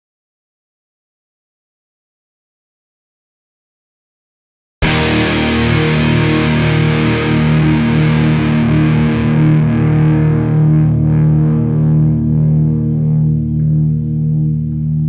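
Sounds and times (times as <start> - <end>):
rock music with distorted guitar: 4.8 - 15.0.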